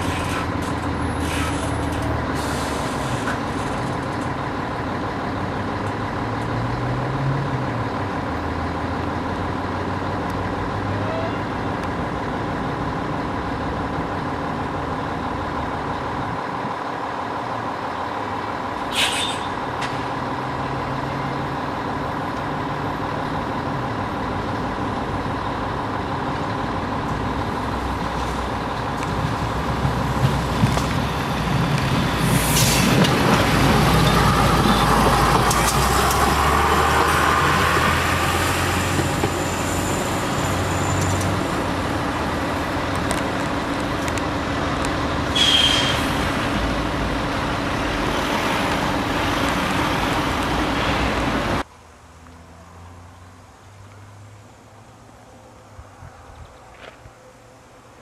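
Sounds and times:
train wheels rumbling on rail: 0.0s - 51.6s
brief hiss: 18.9s - 19.5s.

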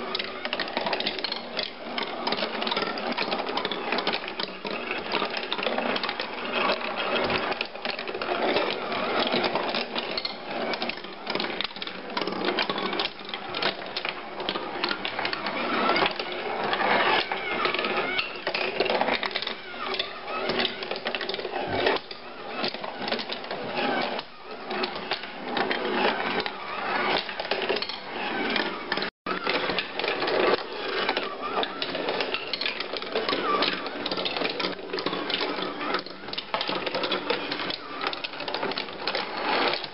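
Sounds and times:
marbles clicking and knocking on wood: 0.0s - 39.9s
marbles rolling on wooden tracks: 0.0s - 39.9s.

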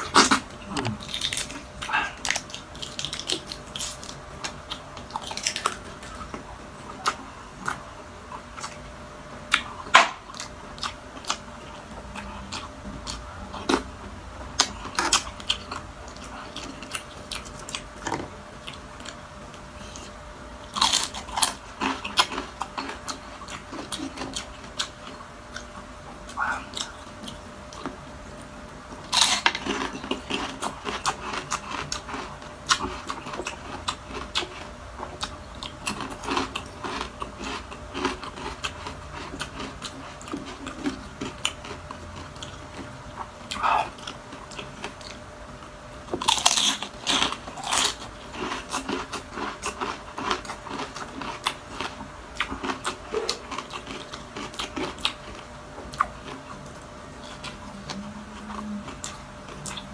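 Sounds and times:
sharp food crunches: 0.0s - 6.4s, 9.5s - 11.4s, 20.7s - 28.0s, 29.1s - 45.2s, 46.1s - 58.0s
person chewing and biting: 0.0s - 8.9s, 9.5s - 59.9s.

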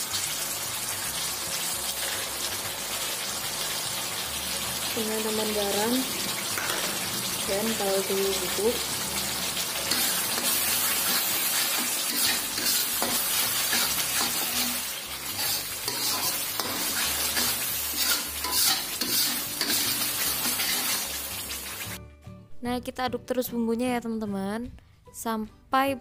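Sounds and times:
paste sizzling in oil: 0.0s - 22.0s
metal spatula scraping wok: 9.5s - 21.9s.

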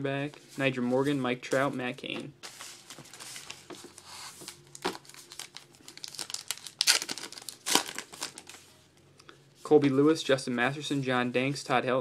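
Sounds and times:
wrapper crinkling: 2.5s - 8.7s
wrapper ripping: 4.5s - 8.6s.

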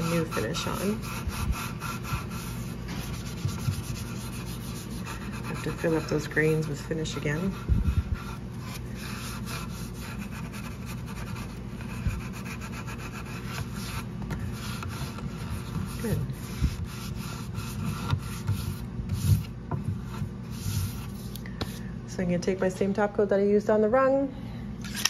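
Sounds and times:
hand rubbing wood: 0.0s - 21.8s.

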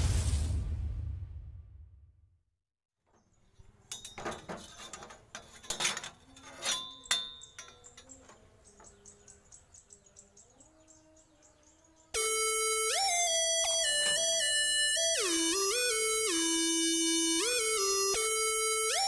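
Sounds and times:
metal clinks and taps: 3.6s - 9.2s
faint chirping: 6.2s - 13.2s.

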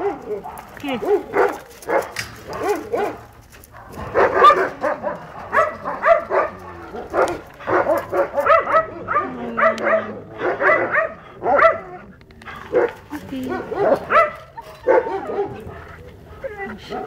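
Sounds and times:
dogs yelping and whining: 12.7s - 17.0s.

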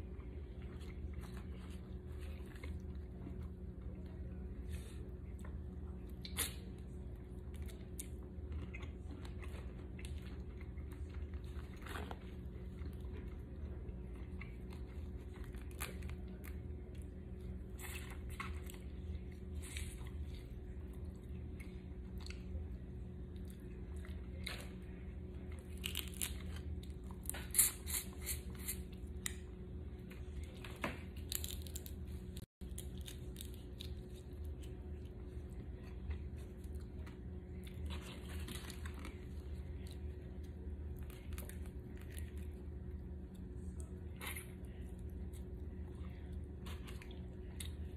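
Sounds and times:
steady low hum: 0.0s - 47.9s
shells cracking and crunching: 31.2s - 32.0s.

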